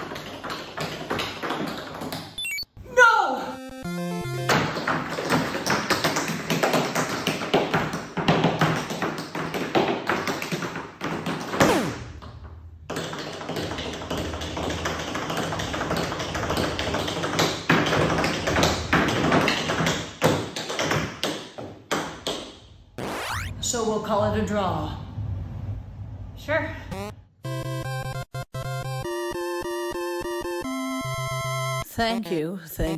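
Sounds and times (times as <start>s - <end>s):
background music: 2.9s - 4.8s
tap shoes on hard floor: 4.4s - 22.5s.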